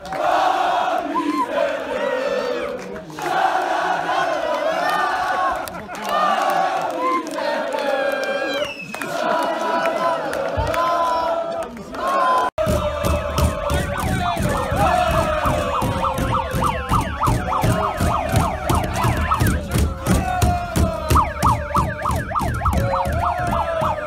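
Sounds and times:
crowd shouting and chanting: 0:00.0 - 0:24.0
rhythmic thumping: 0:12.6 - 0:24.0
wailing siren-like sound: 0:12.9 - 0:24.0.

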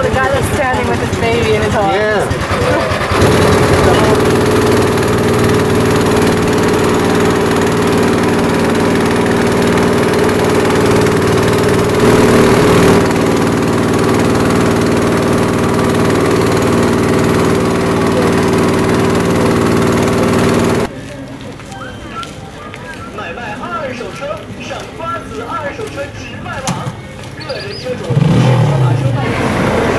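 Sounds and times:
boat engine running: 0:00.0 - 0:20.9, 0:27.5 - 0:29.9.

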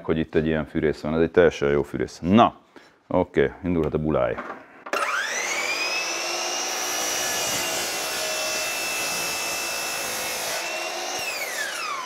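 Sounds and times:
miter saw whine: 0:04.9 - 0:12.0
saw blade cutting wood: 0:04.9 - 0:12.0.

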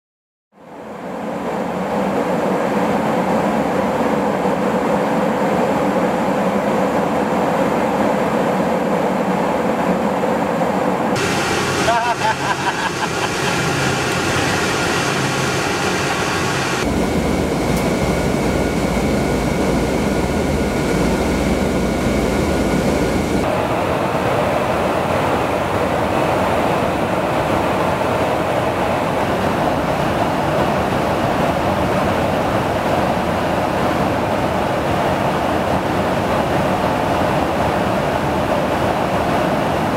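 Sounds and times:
aircraft cabin engine noise: 0:00.7 - 0:39.9
faint high whine: 0:11.2 - 0:25.9.

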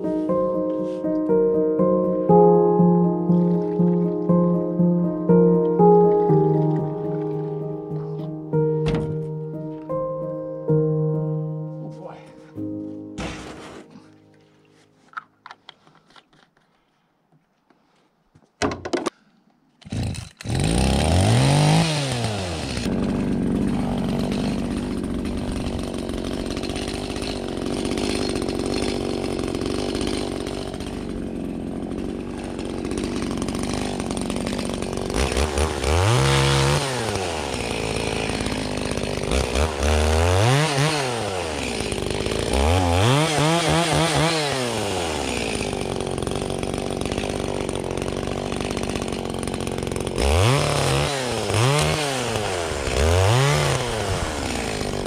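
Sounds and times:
short knocks: 0:08.8 - 0:09.3
small engine revving: 0:19.8 - 0:55.0.

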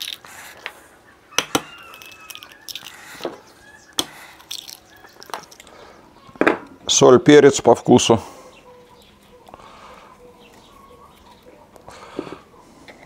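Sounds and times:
eggshells cracking: 0:00.0 - 0:05.8.

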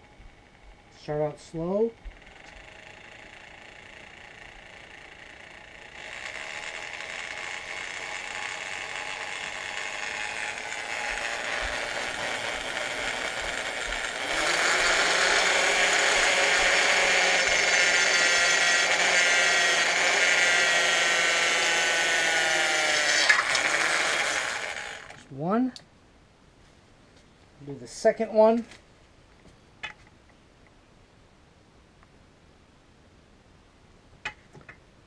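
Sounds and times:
electric drill boring metal: 0:00.1 - 0:25.3.

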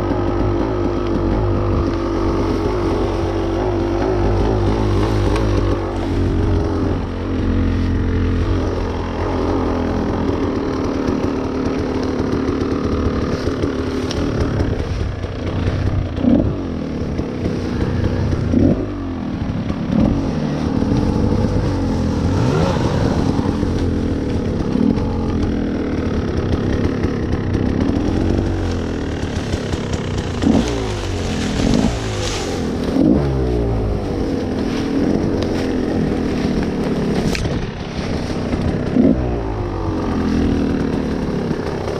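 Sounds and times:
dirt bike engine revving: 0:00.0 - 0:41.9.

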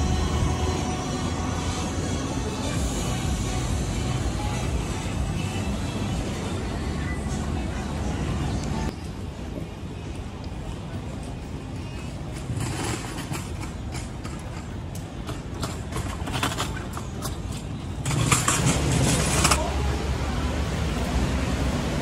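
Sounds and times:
steady low rush: 0:00.0 - 0:12.4
road traffic rumble: 0:00.0 - 0:22.0.

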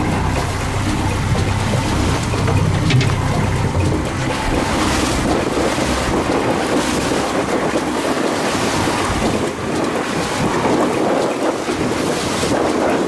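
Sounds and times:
sea rushing: 0:00.0 - 0:13.0
wind buffeting microphone: 0:00.0 - 0:13.0.

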